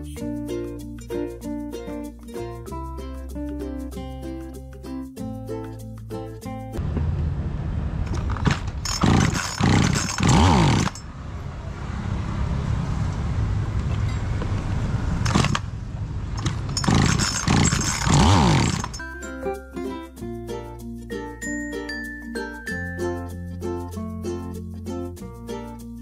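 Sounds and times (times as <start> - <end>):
low hum: 6.8 - 19.1
chainsaw recoil starter pulls: 8.1 - 11.1, 15.2 - 15.7, 16.4 - 19.1.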